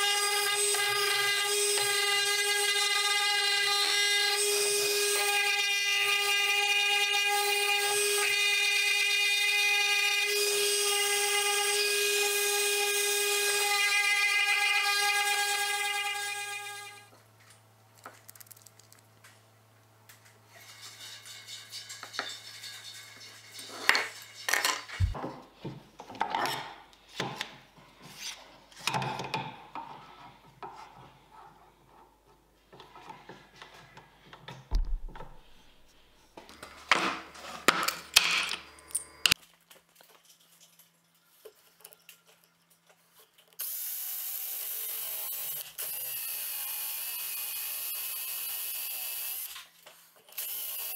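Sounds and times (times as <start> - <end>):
handheld drill boring into wood: 0.0 - 17.0, 43.6 - 49.7, 50.3 - 50.9.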